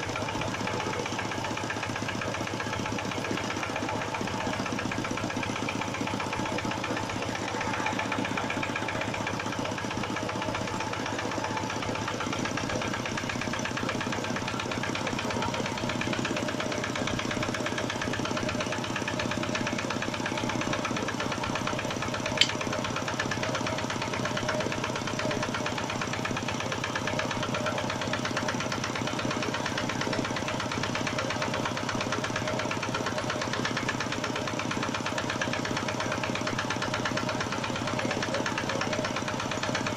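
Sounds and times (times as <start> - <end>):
diesel generator running: 0.0 - 39.9
sharp click: 22.4 - 22.6.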